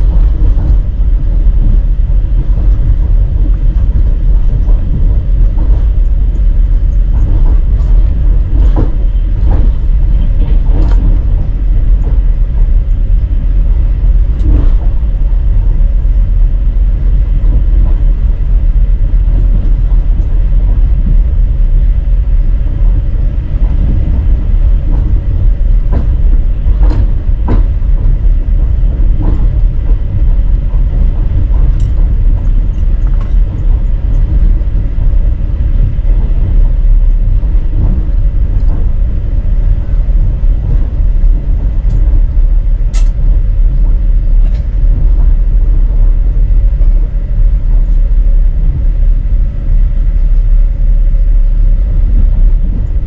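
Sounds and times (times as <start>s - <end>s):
passenger train rumbling: 0.0s - 53.0s
train knocks and rattles: 0.0s - 53.0s.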